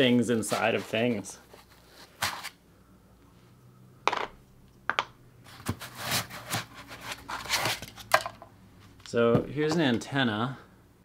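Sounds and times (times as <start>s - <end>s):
foam packaging handled: 5.5s - 8.2s.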